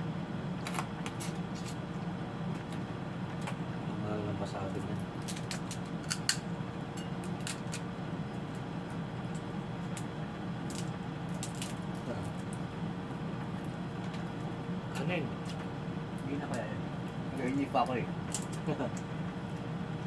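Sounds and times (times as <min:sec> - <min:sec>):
steady low hum: 0:00.0 - 0:20.0
crab shells cracking: 0:05.2 - 0:06.4, 0:07.2 - 0:08.5, 0:09.3 - 0:12.6.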